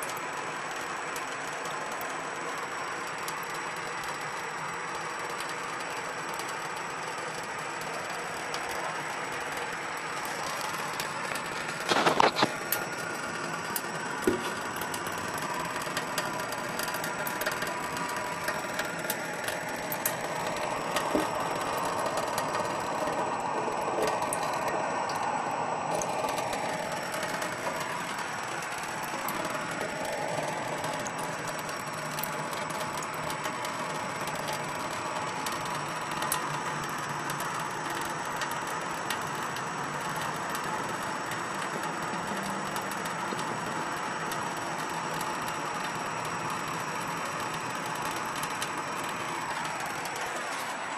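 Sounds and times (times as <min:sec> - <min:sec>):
tap water running into sink: 0:13.7 - 0:25.3, 0:25.9 - 0:43.5.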